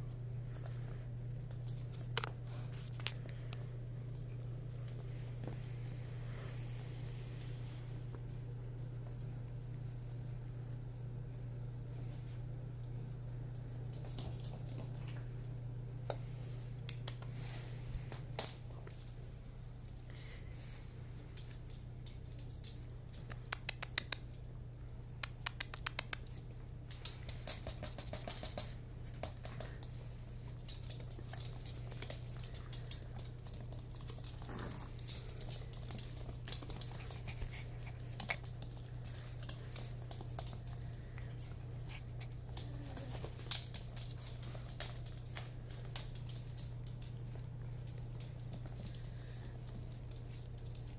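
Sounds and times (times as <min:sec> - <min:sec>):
steady low hum: 0:00.0 - 0:50.9
dog claws clicking on floor: 0:13.5 - 0:15.2, 0:21.2 - 0:50.9.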